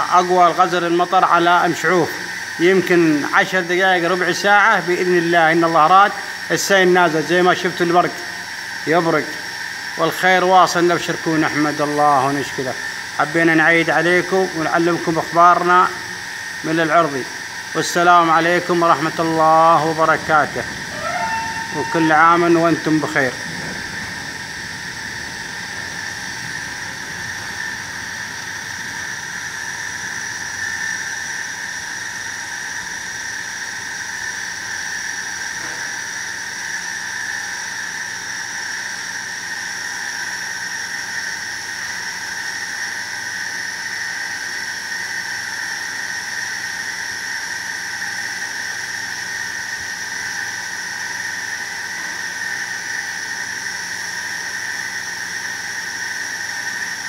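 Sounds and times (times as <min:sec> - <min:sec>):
constant high-pitched whine: 0:00.0 - 0:57.0
heavy rain falling: 0:20.1 - 0:28.4.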